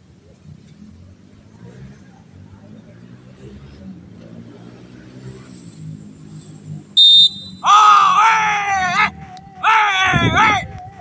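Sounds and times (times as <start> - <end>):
shrill whistle blast: 7.0 - 7.7
man shouting a drawn-out call: 7.3 - 10.8.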